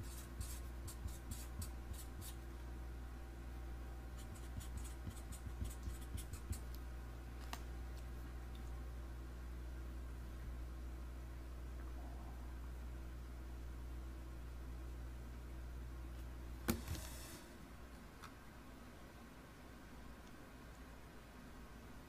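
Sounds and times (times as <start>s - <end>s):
pen scratching on paper: 0.0s - 2.4s, 4.2s - 6.7s
faint low hum: 0.0s - 22.0s.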